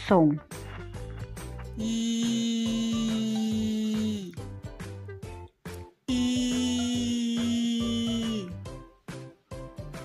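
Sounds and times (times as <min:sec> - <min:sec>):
background music with low beat: 0:00.0 - 0:10.0
woman singing long ee vowel: 0:01.8 - 0:04.4, 0:06.1 - 0:08.6.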